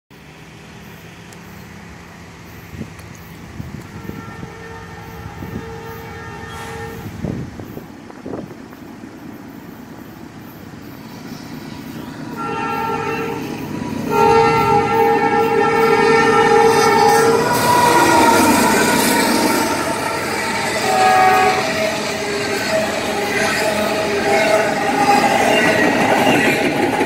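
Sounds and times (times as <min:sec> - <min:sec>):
train rumble: 0:00.1 - 0:27.0
locomotive air horn blasts: 0:03.8 - 0:07.4, 0:12.3 - 0:25.9.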